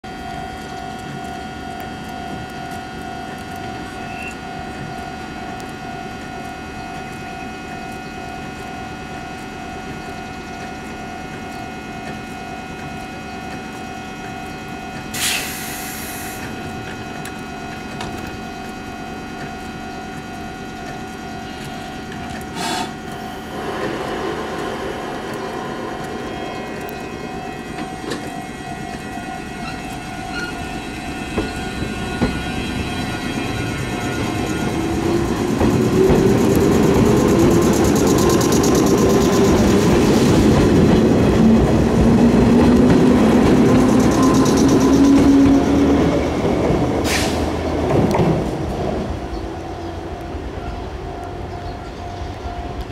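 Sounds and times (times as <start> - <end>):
electric train humming: 0.0 - 52.9
train pulling away: 0.1 - 52.9
air hiss: 15.1 - 16.4, 22.5 - 24.6.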